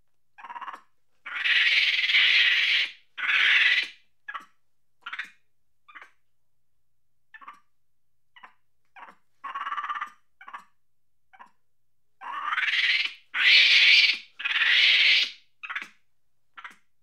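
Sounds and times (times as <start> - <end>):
monkey screeching: 0.4 - 4.5, 8.4 - 10.6, 12.2 - 15.9
monkey chattering: 0.4 - 5.3, 7.4 - 7.6, 8.4 - 10.7.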